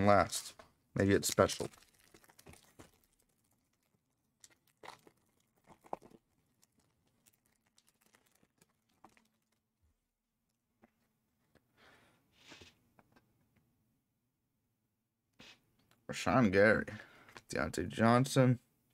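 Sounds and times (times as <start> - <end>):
wrapper crinkling and tearing: 1.1 - 9.8.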